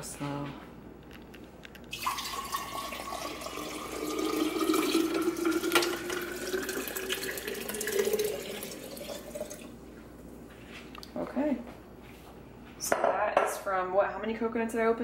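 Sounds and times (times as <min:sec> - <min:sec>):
liquid pouring into glass jar: 0:01.9 - 0:09.8.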